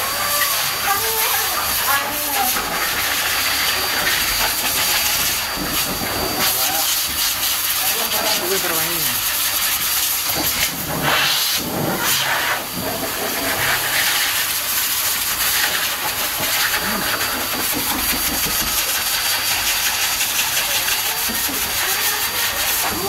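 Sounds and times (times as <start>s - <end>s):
dog dryer blowing air: 0.0s - 23.0s.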